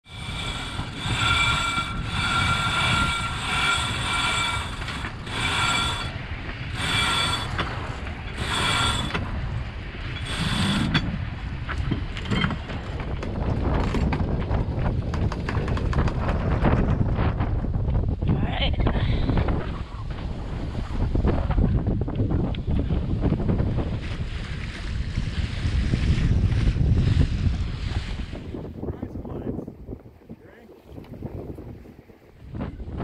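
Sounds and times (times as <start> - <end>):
wind and water rushing: 0.0 - 33.0
winch clicking rapidly: 0.1 - 9.3
halyard squealing through block: 0.1 - 9.4.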